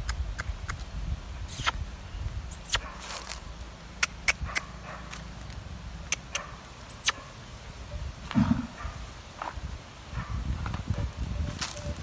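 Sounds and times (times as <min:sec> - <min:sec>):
footsteps on twigs: 0:02.8 - 0:03.5, 0:10.6 - 0:12.0.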